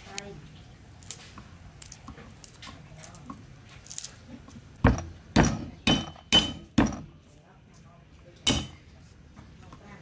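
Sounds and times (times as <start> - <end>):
garlic being peeled clicks: 1.0 - 4.6.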